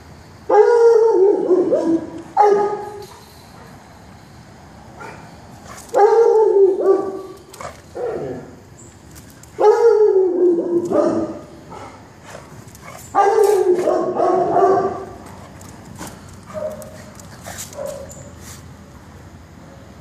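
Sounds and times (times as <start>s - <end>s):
dog bark-howling: 0.5s - 3.0s, 5.9s - 8.5s, 9.6s - 12.0s, 13.1s - 15.2s.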